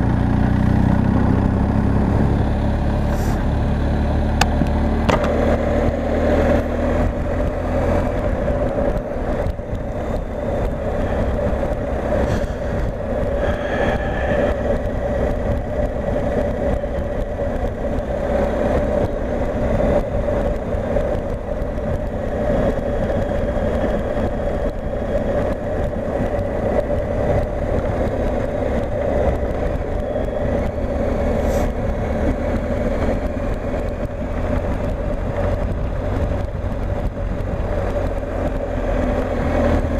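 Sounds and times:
motorcycle engine drone: 0.0 - 39.9.

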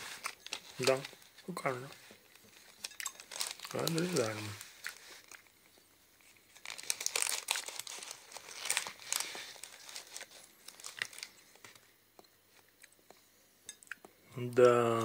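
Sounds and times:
crinkly crunching: 0.0 - 11.9.

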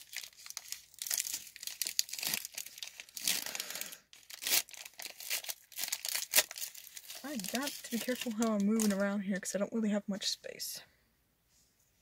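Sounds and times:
foil wrapper crinkling and tearing: 0.0 - 9.0.

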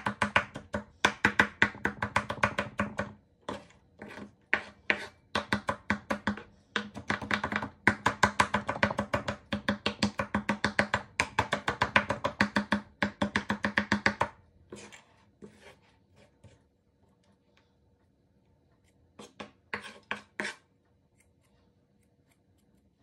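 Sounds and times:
knife chopping on wooden board: 0.0 - 14.9
knife taps and scrapes: 3.5 - 5.2, 18.8 - 21.3.

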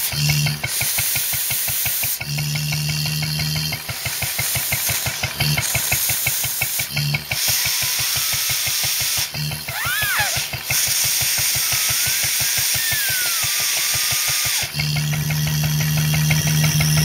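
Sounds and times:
stationary engine beating: 0.0 - 17.0
air hissing and whistling: 5.8 - 15.0.

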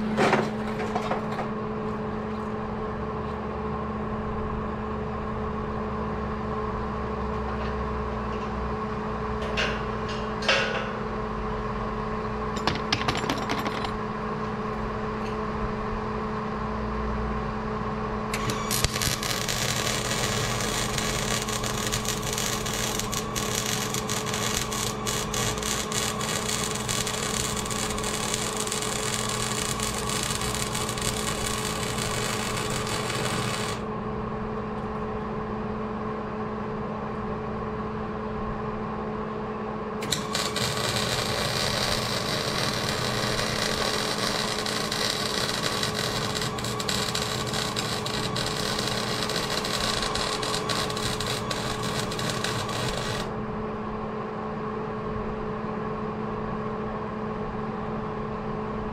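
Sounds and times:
steady hum: 8.0 - 58.9
welding arc crackling: 18.4 - 33.9, 40.0 - 53.3.

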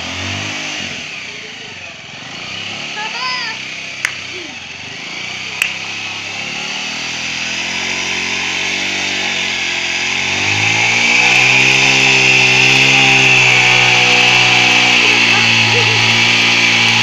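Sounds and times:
motorcycle engine revving: 0.0 - 17.0
sharp click: 5.6 - 5.8.

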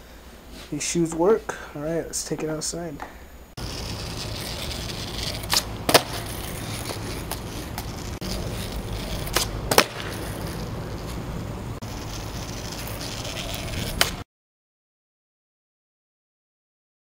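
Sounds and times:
skateboard rolling on asphalt: 3.6 - 14.2
skateboard landing clack: 4.1 - 8.1, 9.0 - 11.2, 12.4 - 14.2
skateboard tail snap: 5.2 - 8.1, 9.0 - 11.2, 12.7 - 14.2.

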